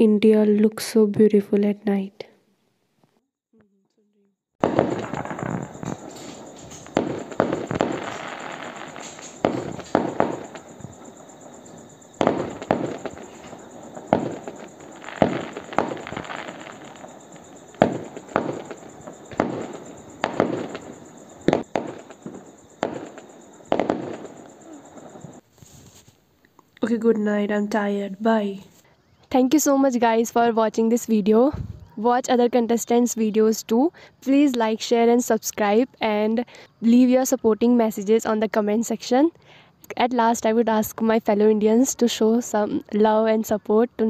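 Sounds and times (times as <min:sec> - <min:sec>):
firecracker bangs: 0:04.6 - 0:25.4
fireworks crackling hiss: 0:04.6 - 0:26.3.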